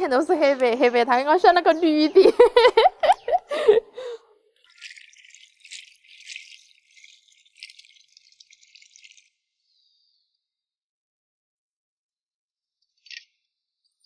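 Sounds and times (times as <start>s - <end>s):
beans rustling and splashing in water: 4.0s - 9.5s
running tap: 4.6s - 9.4s.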